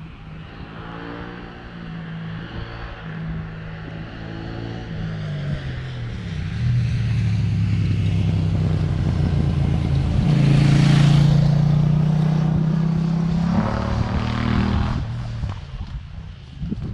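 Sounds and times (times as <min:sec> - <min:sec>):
wind rushing over microphone: 0:00.0 - 0:16.9
motorcycle engine running: 0:06.2 - 0:16.1.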